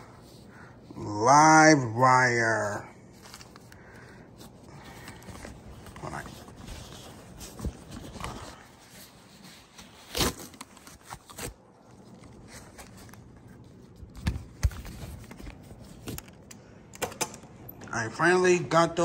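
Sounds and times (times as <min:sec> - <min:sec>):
paper rustling and crinkling: 0:03.0 - 0:16.5.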